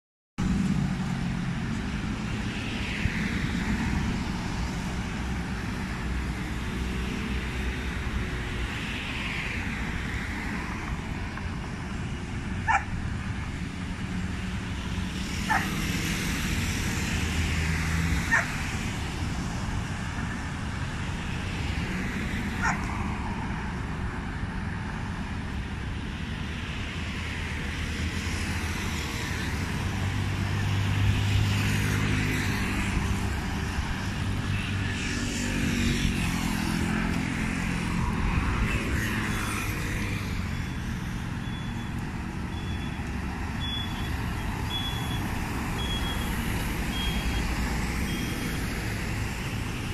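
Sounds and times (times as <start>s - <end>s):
city road traffic: 0.4s - 49.9s
motor scooters passing: 0.5s - 49.9s
dog barks: 12.6s - 12.9s, 15.5s - 15.8s, 18.3s - 18.6s, 22.6s - 22.9s.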